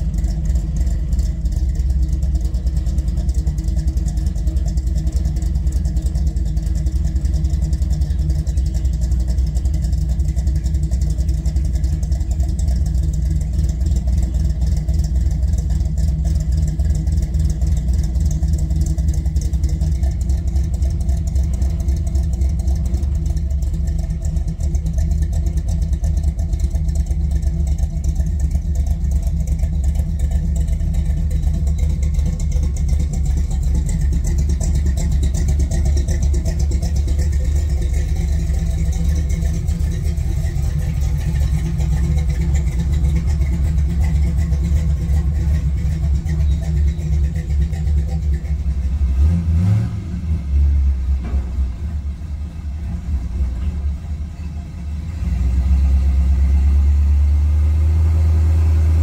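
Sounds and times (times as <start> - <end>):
truck engine idling: 0.0 - 59.0.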